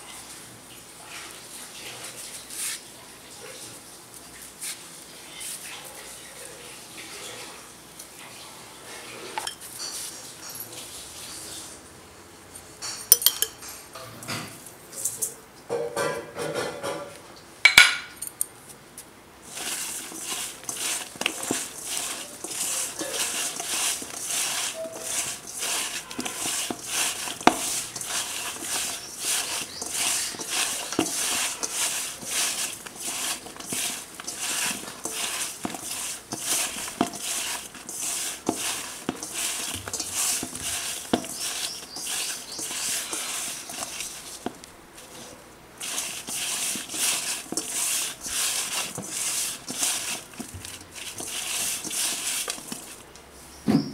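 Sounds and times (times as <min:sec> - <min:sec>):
slices scraping in metal bowl: 0:19.4 - 0:53.1.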